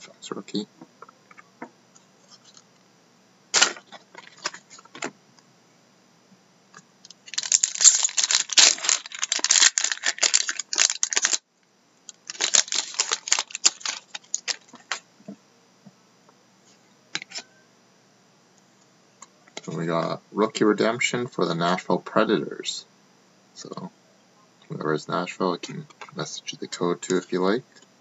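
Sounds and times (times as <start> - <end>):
foil wrapper crinkling and tearing: 7.2 - 11.4, 12.1 - 15.0.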